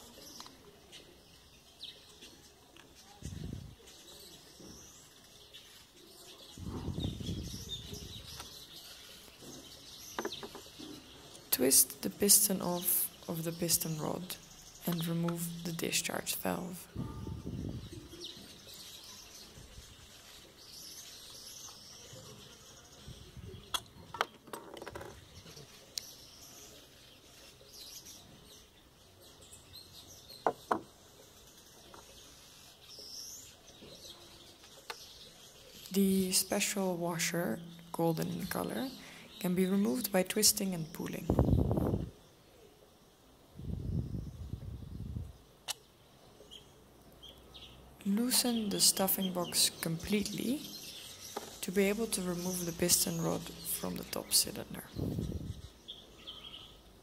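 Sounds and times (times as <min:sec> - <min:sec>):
birds chirping faintly: 0:00.0 - 0:57.0
knocks on wooden table: 0:30.4 - 0:30.9.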